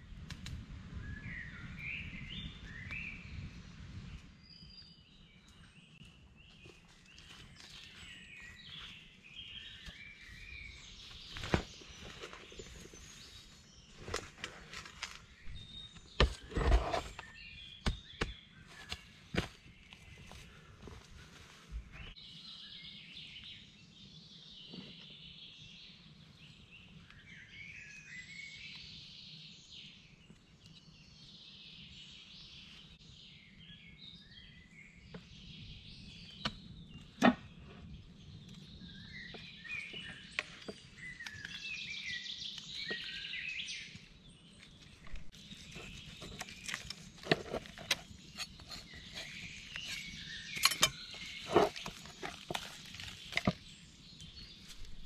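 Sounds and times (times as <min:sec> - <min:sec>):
birds singing and chirping: 0:00.8 - 0:55.0
knife on a wooden board: 0:16.2 - 0:17.2, 0:47.2 - 0:52.6.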